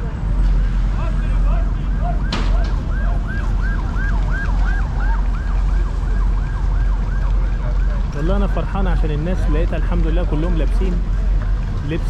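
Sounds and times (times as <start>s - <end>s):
siren yelping: 1.6s - 8.2s.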